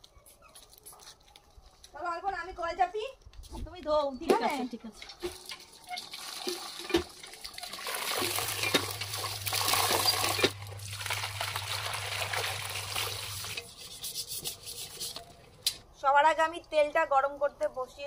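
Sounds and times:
water splashing into steel bowl: 5.0s - 13.7s.

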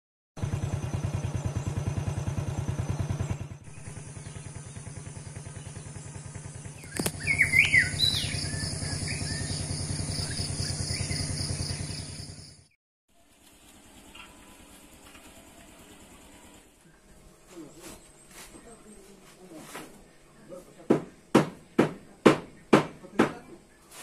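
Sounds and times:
birds chirping: 0.4s - 12.8s
engine running: 0.4s - 17.8s
sharp click: 6.8s - 7.2s.

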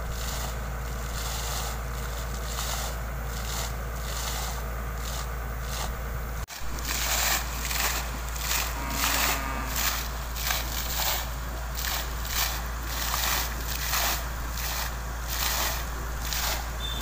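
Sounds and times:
steady low rumble: 0.0s - 17.0s
water gushing and splashing: 6.4s - 17.0s.

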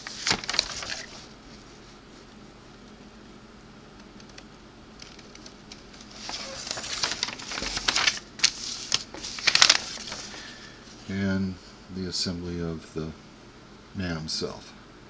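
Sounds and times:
paper rustling and crinkling: 0.0s - 2.3s, 5.0s - 11.1s.

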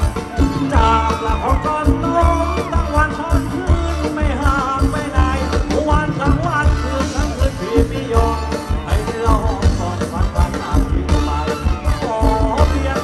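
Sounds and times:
band playing drum and bass beat: 0.0s - 13.0s
person singing: 0.0s - 13.0s.

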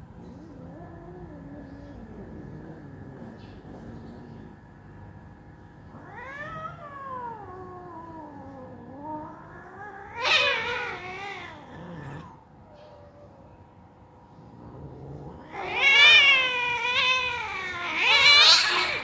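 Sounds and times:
cats caterwauling yowls: 5.9s - 12.4s, 15.1s - 19.0s.

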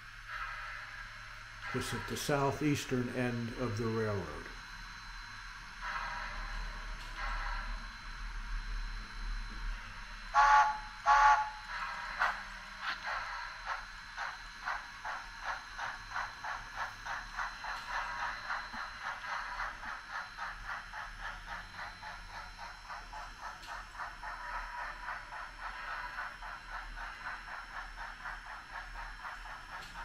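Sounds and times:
model steam locomotive chuffing: 0.0s - 30.0s
model steam locomotive whistle: 10.3s - 11.7s.

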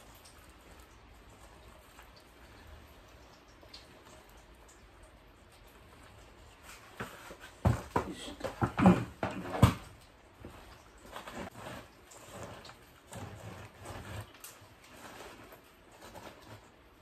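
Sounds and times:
plastic bucket knocks: 7.6s - 9.9s.

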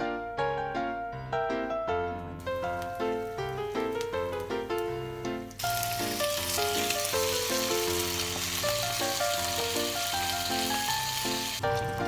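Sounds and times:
background music: 0.0s - 12.0s
oysters sizzling in hot oil: 2.4s - 12.0s.

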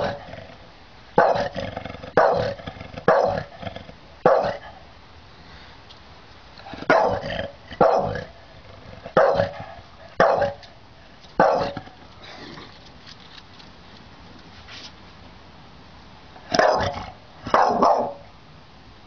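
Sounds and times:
dog barking: 1.2s - 1.6s, 2.2s - 3.5s, 4.2s - 4.7s, 6.9s - 8.3s, 9.2s - 10.6s, 11.4s - 11.8s, 16.5s - 18.3s.

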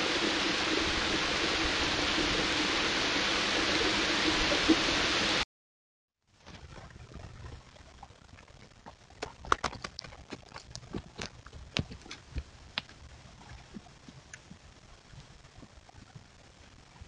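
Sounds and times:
clicks and snaps of undergrowth: 9.1s - 13.0s.

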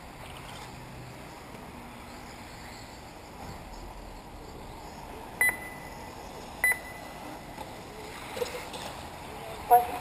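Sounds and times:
steady background noise: 0.0s - 10.0s
short electronic beeps: 5.4s - 6.0s, 6.6s - 7.2s.

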